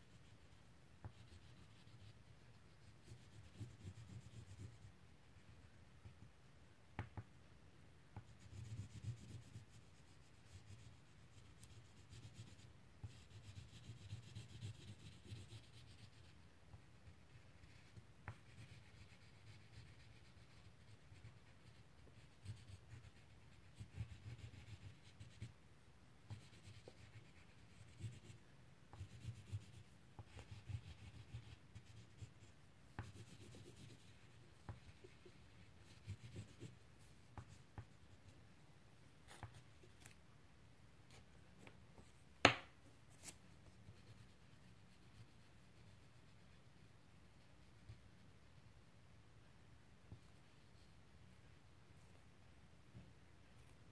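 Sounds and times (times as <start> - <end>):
crayon scratching on paper: 0.2 - 4.9, 8.2 - 16.4, 17.0 - 25.5, 26.3 - 38.0.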